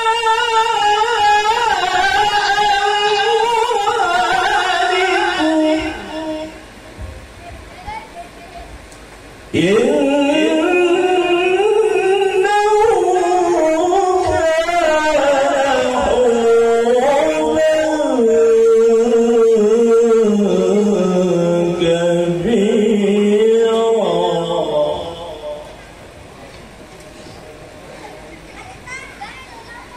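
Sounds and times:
man chanting into a microphone: 0:00.0 - 0:06.8, 0:09.5 - 0:25.8.

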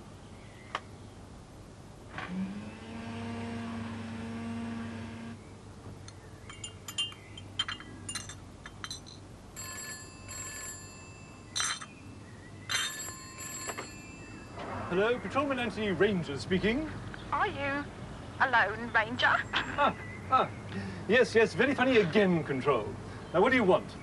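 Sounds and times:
teaspoon clinking against teacup: 0:06.5 - 0:09.2, 0:11.5 - 0:11.9
telephone bell ringing: 0:09.6 - 0:11.5, 0:12.7 - 0:14.6.

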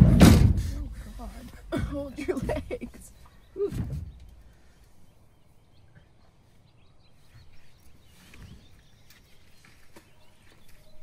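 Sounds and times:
bird chirps: 0:02.3 - 0:11.0
soft thumps: 0:03.6 - 0:04.5.

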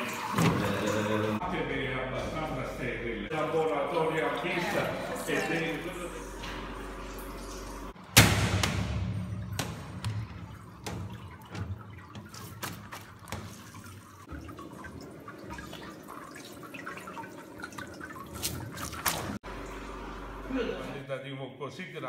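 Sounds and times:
wet knocks and squelches: 0:08.2 - 0:14.3, 0:17.7 - 0:19.4
whey dripping and splashing: 0:09.5 - 0:19.5.

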